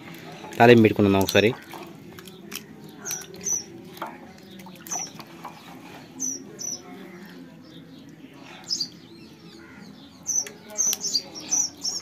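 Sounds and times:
water sloshing in a steel bowl: 0:00.0 - 0:09.1
small bird chirping: 0:02.2 - 0:03.8, 0:04.4 - 0:05.3, 0:06.0 - 0:12.0.

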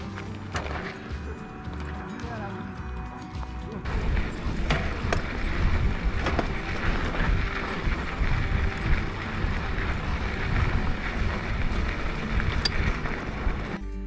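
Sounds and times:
bike clack: 0:00.0 - 0:02.0, 0:03.8 - 0:13.8
tyre rumble: 0:03.8 - 0:13.8
wind buffeting microphone: 0:03.8 - 0:13.8.

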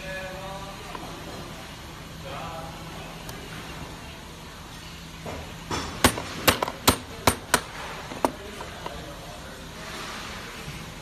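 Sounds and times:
hammer tapping on metal: 0:05.8 - 0:07.7.

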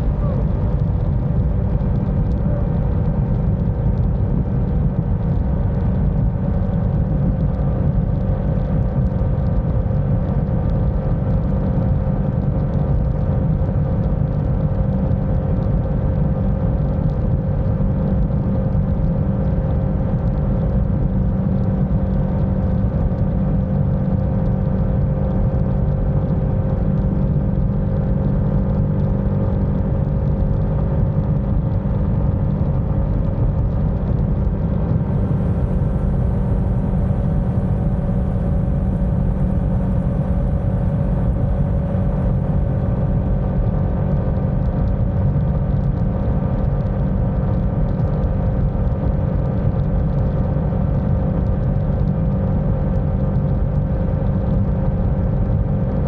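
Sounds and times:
wind buffeting microphone: 0:00.0 - 0:10.4
motorcycle engine hum: 0:00.0 - 0:56.0.

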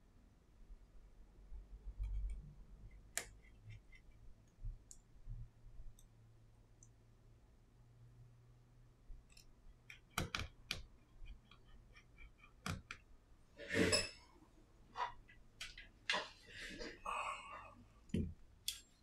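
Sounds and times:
screwdriver clicks and taps: 0:09.3 - 0:10.9, 0:12.6 - 0:13.0.

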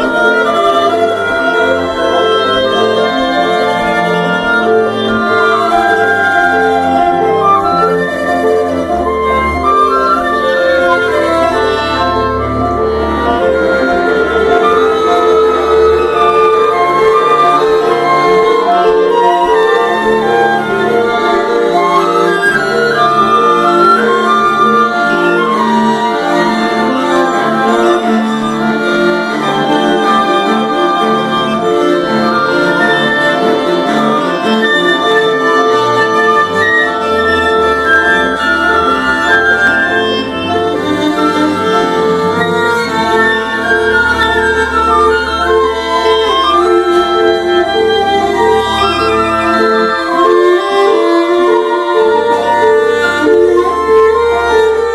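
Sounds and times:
bowed strings sustained notes: 0:00.0 - 0:54.9.

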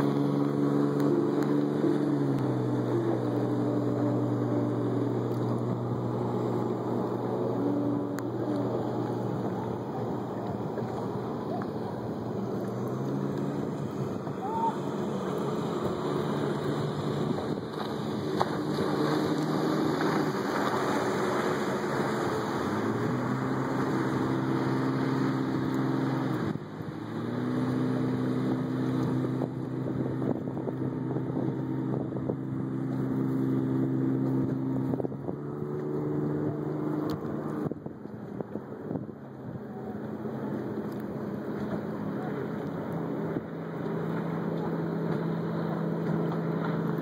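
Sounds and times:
motorboat engine running: 0:00.0 - 0:47.0
wind noise on microphone: 0:16.7 - 0:21.7, 0:27.8 - 0:40.0.

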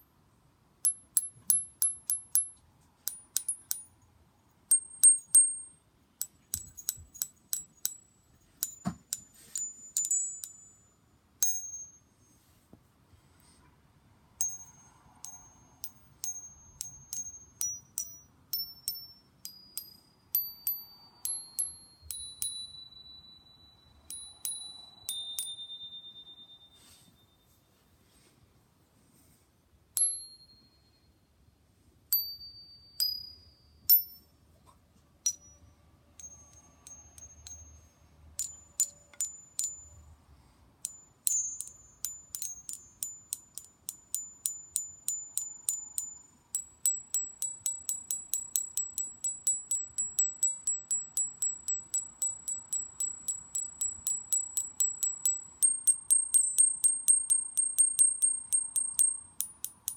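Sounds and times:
bar chimes struck with metal rod: 0:04.7 - 0:12.1, 0:14.4 - 0:26.8, 0:35.2 - 0:40.1, 0:40.8 - 0:59.9
rapid tapping on high chime bar: 0:04.7 - 0:12.2, 0:14.4 - 0:27.0, 0:35.3 - 0:40.1, 0:40.8 - 0:59.9.

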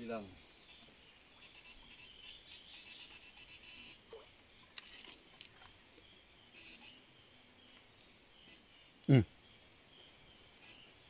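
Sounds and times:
faint insect chirping: 0:00.0 - 0:11.0.

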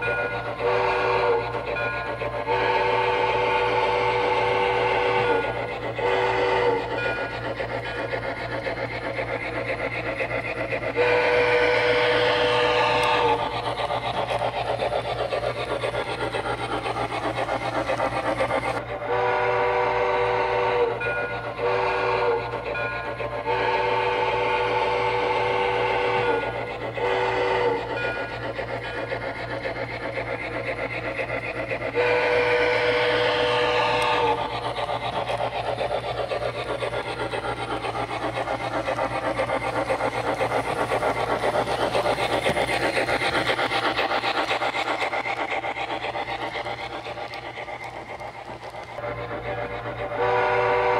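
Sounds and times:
chime steam whistle blasts: 0:00.0 - 0:07.4, 0:11.0 - 0:13.4, 0:19.0 - 0:28.3, 0:31.9 - 0:34.4, 0:50.2 - 0:50.9
model locomotive running sound: 0:00.0 - 0:50.9.

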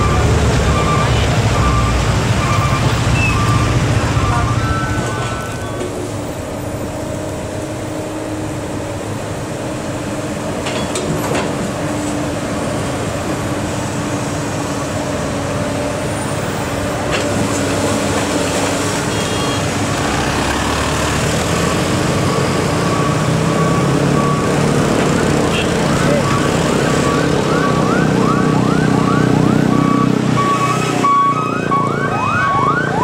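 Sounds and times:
heavy diesel engines running: 0:00.0 - 0:33.0
motorcycles passing: 0:17.8 - 0:33.0
vehicle approaching: 0:19.8 - 0:33.0.

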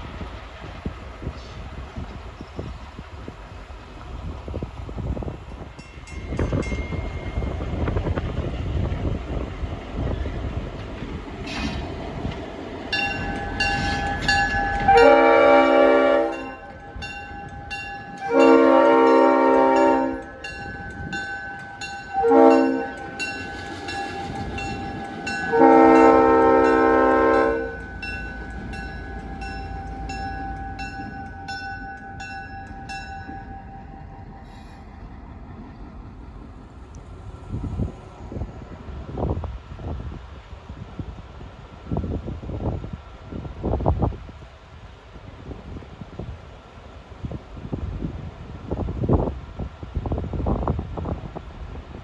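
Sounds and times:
diesel locomotive rumbling past: 0:00.0 - 0:52.0
bell ringing: 0:05.8 - 0:07.6, 0:12.9 - 0:14.9, 0:27.6 - 0:34.5
locomotive air horn: 0:13.8 - 0:16.8, 0:18.1 - 0:20.5, 0:22.1 - 0:27.9.

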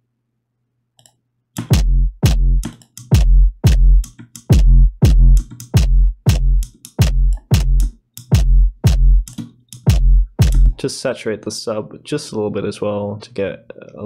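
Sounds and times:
distorted synth bass stabs: 0:01.7 - 0:09.2.

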